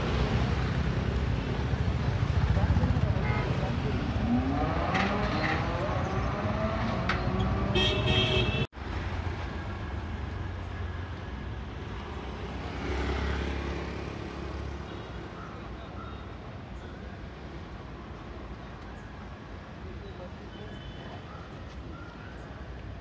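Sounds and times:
street traffic: 0.0 - 23.0
car horn tooting: 7.4 - 8.7.

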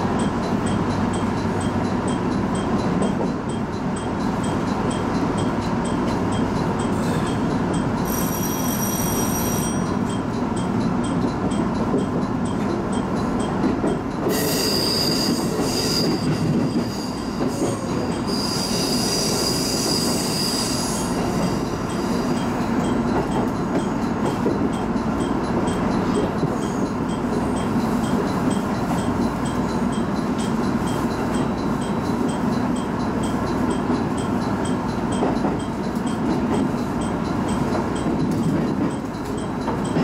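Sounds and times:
train rumbling on rails: 0.0 - 40.0
high wheel squeal: 8.0 - 10.0, 14.3 - 22.6.

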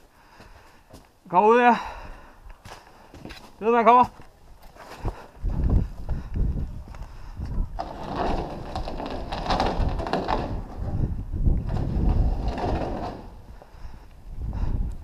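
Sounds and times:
footsteps on pavement: 0.3 - 1.2, 2.5 - 7.7
wind on microphone: 5.0 - 15.0.

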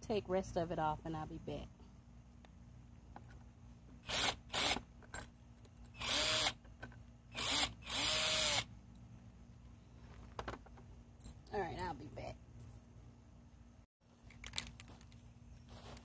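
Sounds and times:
cordless drill spinning: 4.0 - 4.9, 5.9 - 6.6, 7.3 - 8.7.

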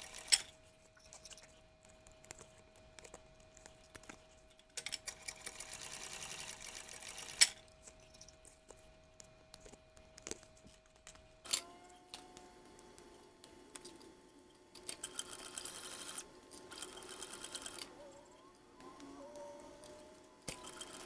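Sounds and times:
sewing machine rapid ticking: 0.0 - 0.4, 5.1 - 7.5, 14.9 - 17.9, 20.5 - 21.0
scattered clicks: 0.0 - 21.0
motor hum: 11.4 - 21.0.

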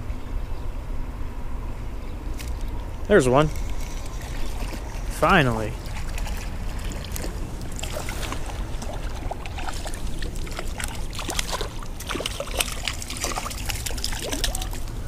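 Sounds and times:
fish splashing in water: 3.5 - 15.0.

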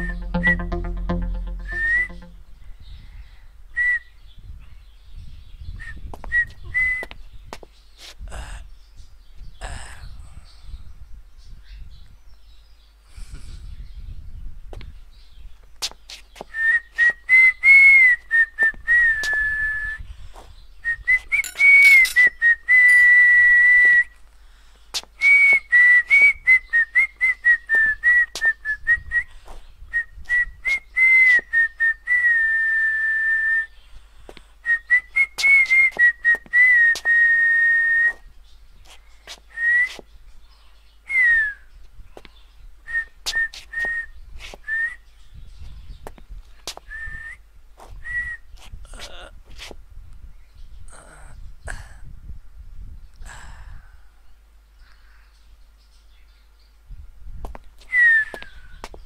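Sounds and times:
person whistling a tune: 0.0 - 2.3, 21.0 - 24.1, 57.9 - 58.6.

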